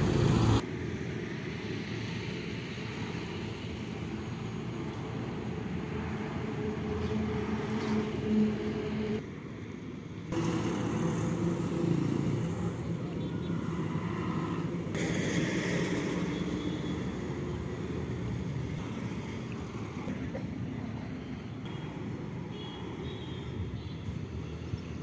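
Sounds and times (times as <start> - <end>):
passing vehicle rush: 0.0 - 0.9, 10.3 - 20.1
trucks driving past: 0.0 - 25.0.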